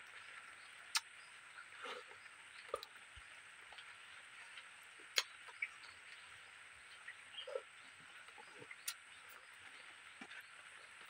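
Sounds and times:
chewing with wet clicks and smacks: 0.9s - 1.2s, 1.8s - 3.0s, 3.6s - 6.3s, 6.9s - 10.5s.

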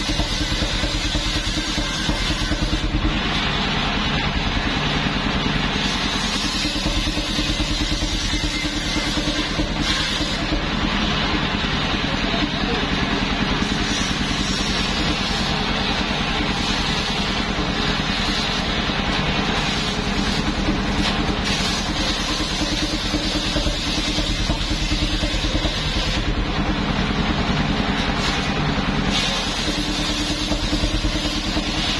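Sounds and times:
sawmill engine running: 0.0s - 31.9s
saw blade ripping wood: 19.6s - 26.2s.

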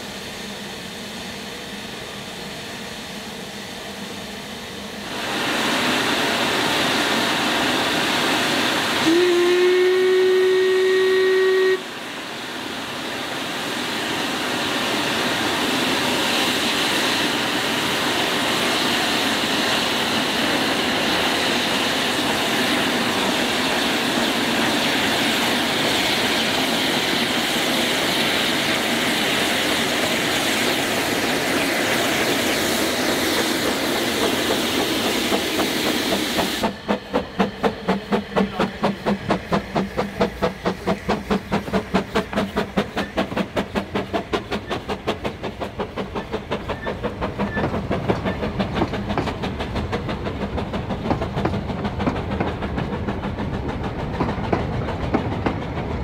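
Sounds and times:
steam hissing: 0.0s - 56.0s
steam locomotive whistle blast: 8.9s - 12.1s.

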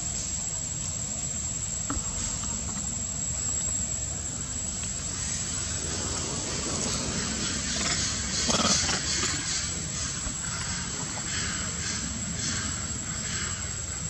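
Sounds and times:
thin high-pitched whine: 0.0s - 14.0s
hiss: 4.3s - 14.0s.

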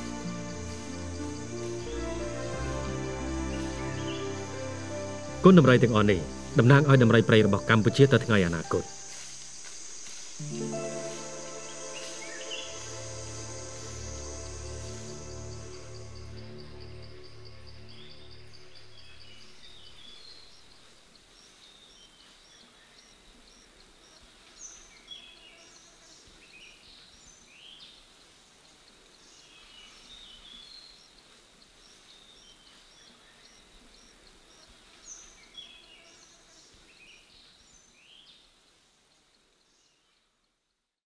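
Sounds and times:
thin high whine: 7.9s - 16.0s.

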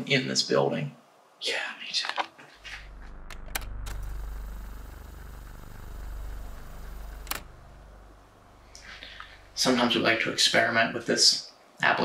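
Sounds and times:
fast-forward whirring drone: 2.6s - 10.2s
sharp clicks: 3.1s - 7.6s.

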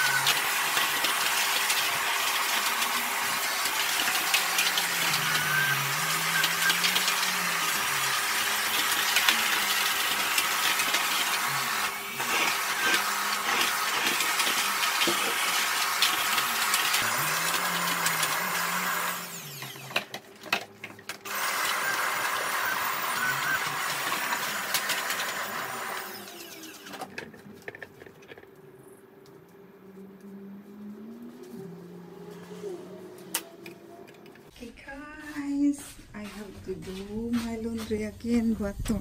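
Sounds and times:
vacuum cleaner knocking: 0.0s - 19.0s
vacuum cleaner running: 0.0s - 28.4s, 30.9s - 34.5s.

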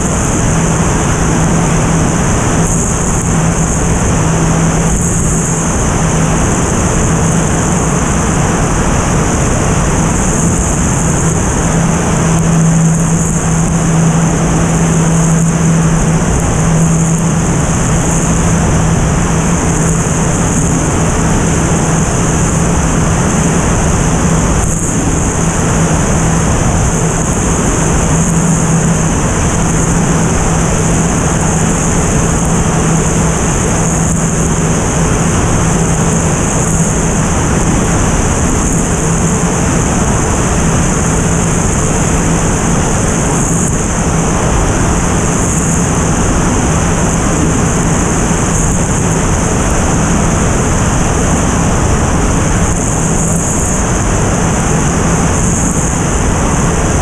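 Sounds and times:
propeller airplane engine drone: 0.0s - 57.0s
wind rushing over microphone: 0.0s - 57.0s.

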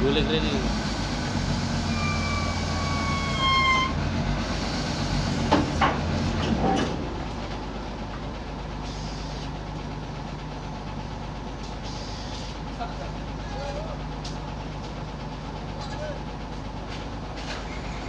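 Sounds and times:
diesel engine running: 0.0s - 18.0s
high squeal: 1.3s - 4.0s, 17.6s - 18.0s.

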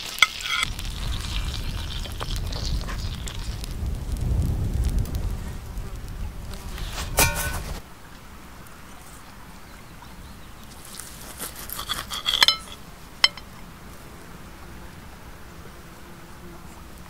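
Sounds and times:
cutlery scraping on a plate: 0.1s - 0.7s, 7.2s - 7.8s, 11.4s - 13.5s.

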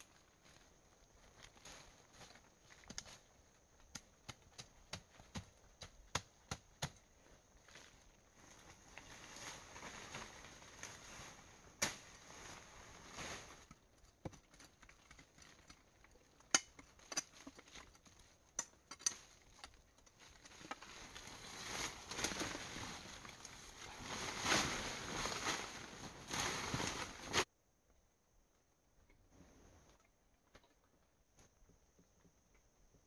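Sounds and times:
leaves rustling: 0.0s - 3.7s, 7.2s - 13.9s, 17.4s - 27.5s.

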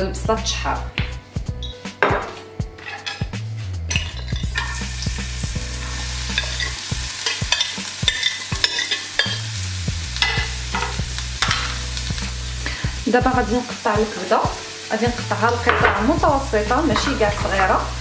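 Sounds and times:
onion sizzling in hot oil: 3.9s - 18.0s
knife clicking and tapping in pan: 6.3s - 9.5s, 10.2s - 11.8s.

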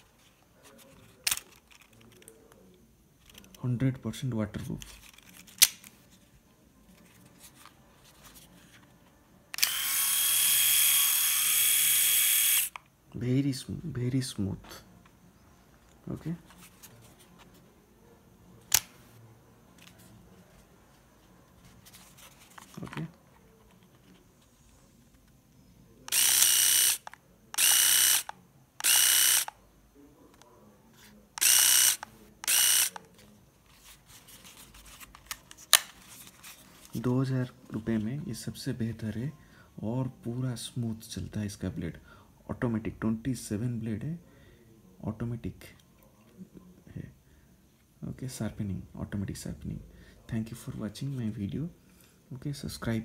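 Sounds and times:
electric shaver whining: 9.6s - 12.7s, 27.6s - 29.5s.

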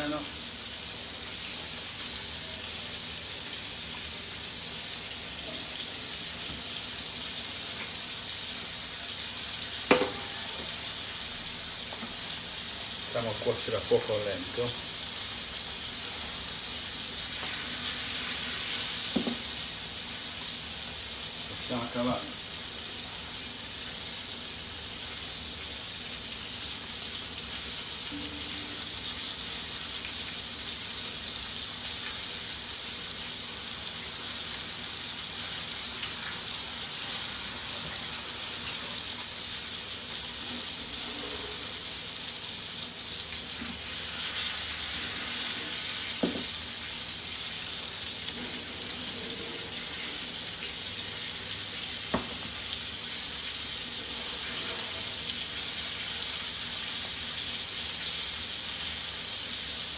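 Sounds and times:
fish sizzling in frying pans: 0.0s - 59.9s
pan knocks: 9.9s - 10.4s.

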